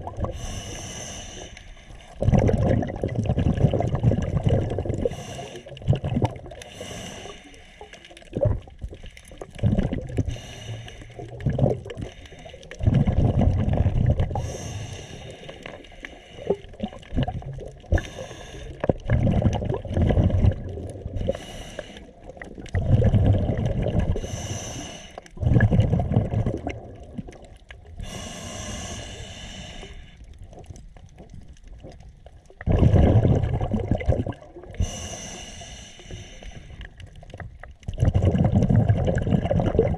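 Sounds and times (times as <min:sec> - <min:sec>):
diver inhaling through regulator: 0:00.2 - 0:02.2, 0:05.0 - 0:05.8, 0:06.6 - 0:08.3, 0:10.2 - 0:12.9, 0:14.3 - 0:16.8, 0:17.9 - 0:19.0, 0:21.1 - 0:22.2, 0:24.1 - 0:25.5, 0:28.0 - 0:30.3, 0:34.7 - 0:37.0
bubbling exhaust: 0:02.2 - 0:07.4, 0:08.3 - 0:15.2, 0:16.4 - 0:27.4, 0:32.6 - 0:35.4, 0:37.9 - 0:39.9.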